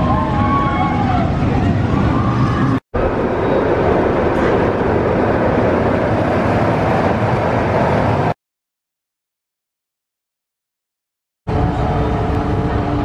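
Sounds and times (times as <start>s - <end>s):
roller coaster train rumbling: 0.0s - 8.4s, 11.5s - 13.0s.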